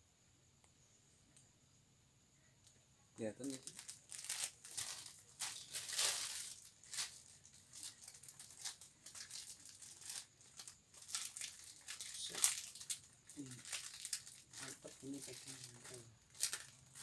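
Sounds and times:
plastic mailer bag crinkling: 0:03.4 - 0:17.0.

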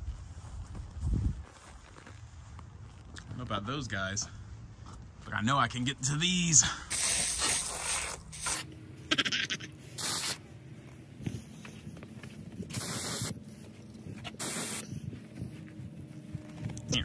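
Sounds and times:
aerosol spray hissing: 0:06.9 - 0:08.7, 0:10.0 - 0:10.4, 0:12.7 - 0:13.4, 0:14.3 - 0:14.8.

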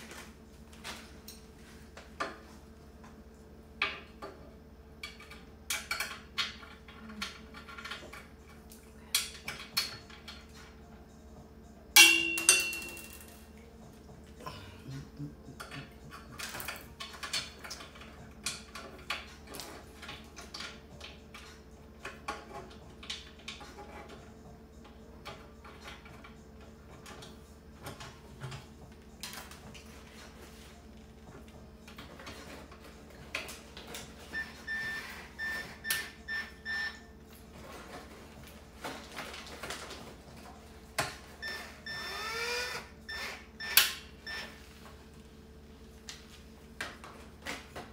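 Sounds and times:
metal parts clicking and knocking: 0:05.0 - 0:10.8.

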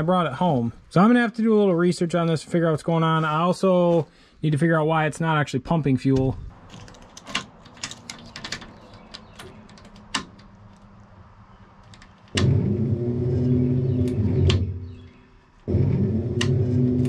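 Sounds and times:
electric fuel pump humming: 0:12.3 - 0:17.0.

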